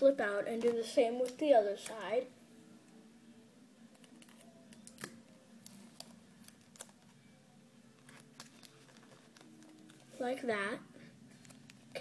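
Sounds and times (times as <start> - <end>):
low steady hum: 0.0 - 12.0
paper and tape crinkling: 8.0 - 10.3.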